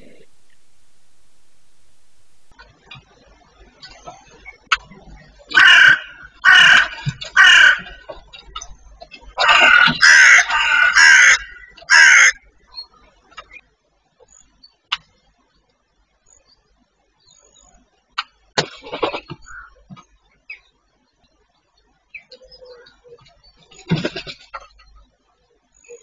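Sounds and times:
magpies chattering: 3.9 - 13.6, 19.0 - 19.9.

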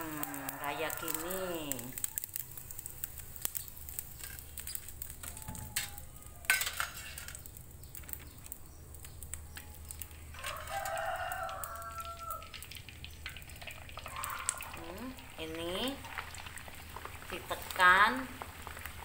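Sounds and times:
rooster crowing: 0.0 - 1.3, 5.2 - 6.8, 9.7 - 12.6, 14.0 - 15.0
hot oil crackling and sizzling: 0.0 - 19.0
metal skimmer clatter: 6.5 - 7.4.

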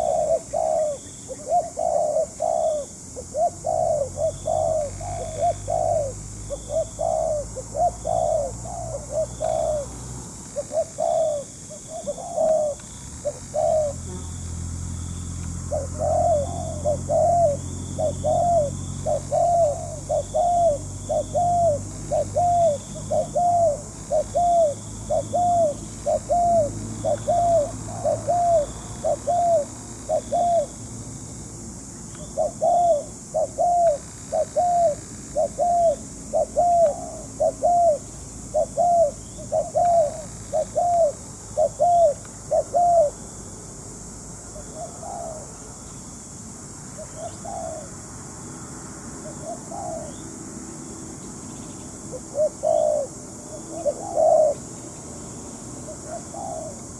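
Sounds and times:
dove cooing: 0.0 - 30.8, 32.2 - 43.3, 44.5 - 45.8, 47.0 - 48.0, 49.2 - 50.2, 52.1 - 54.8, 55.8 - 56.9.

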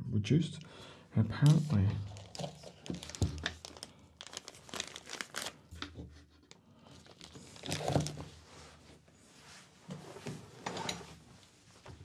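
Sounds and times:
plastic bag crinkling: 2.1 - 5.7, 6.9 - 8.3.

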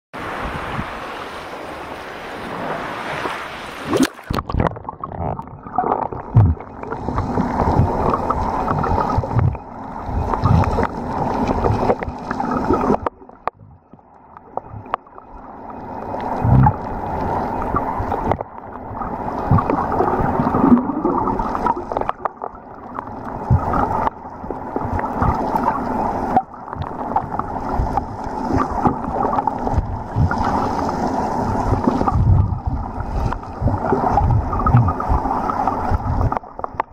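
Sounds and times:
wind: 0.2 - 4.8
small waves: 0.2 - 36.9
underwater gurgling and sloshing: 0.2 - 36.9.

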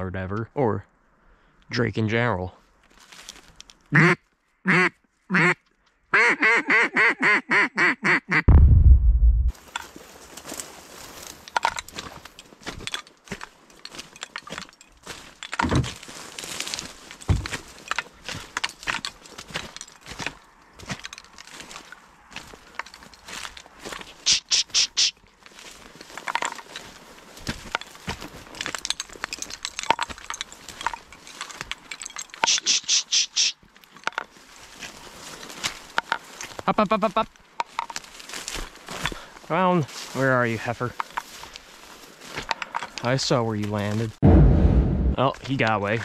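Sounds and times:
footsteps through dry reeds: 2.6 - 6.0, 9.5 - 44.2
dull thumps: 8.5 - 9.5
cattail stalks crackling on a hull: 9.6 - 44.2.

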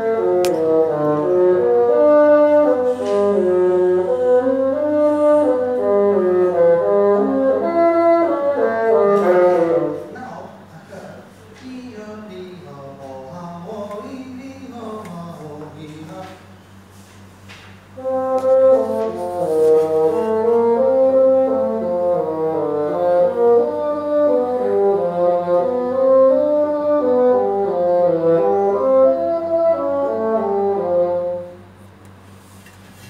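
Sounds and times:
solo bassoon playing: 0.0 - 10.1, 18.0 - 31.8.

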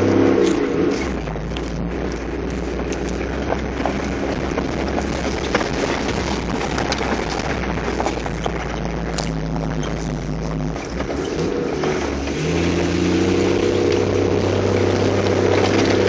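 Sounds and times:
knocks and rattles over bumps: 0.0 - 16.0
rumble of tyres and chassis: 0.0 - 16.0
vehicle engine running low: 0.0 - 16.0.

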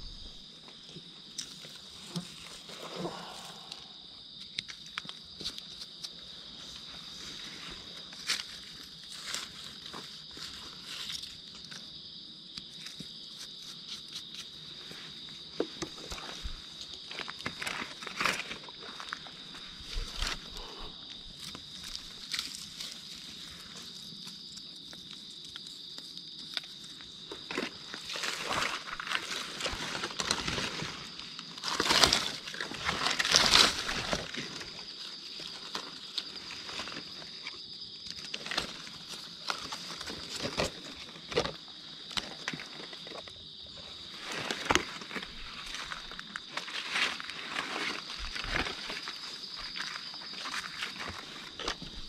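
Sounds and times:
high insect drone: 0.0 - 52.0
rustling of dry leaves: 4.8 - 11.9, 12.7 - 52.0.

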